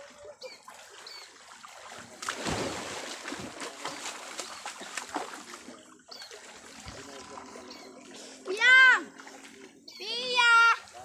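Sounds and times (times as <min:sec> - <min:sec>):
person splashing in river water: 0:00.0 - 0:07.1.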